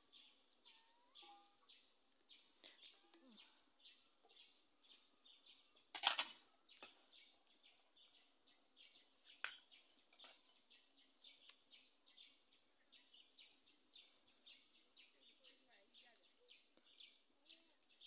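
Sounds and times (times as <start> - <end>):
birds chirping: 0.0 - 18.0
insects chirping: 0.0 - 18.0.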